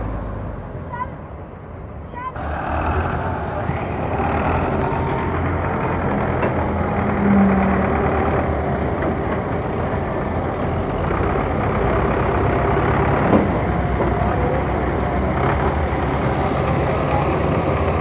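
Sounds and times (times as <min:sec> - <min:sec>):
heavy diesel engines running: 0:00.0 - 0:18.0.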